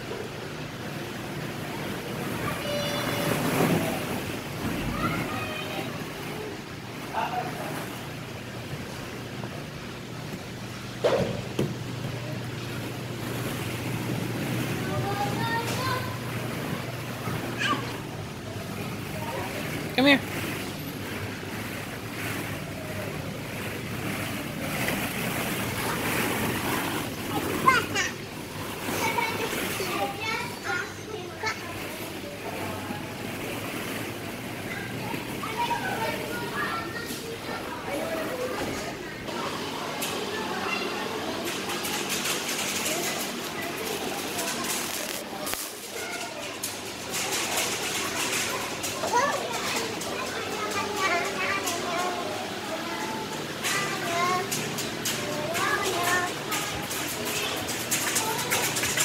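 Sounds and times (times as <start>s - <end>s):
crowd noise: 10.9s - 59.0s
plastic balls rustling and clattering: 18.7s - 30.6s, 41.4s - 52.2s, 53.4s - 59.0s.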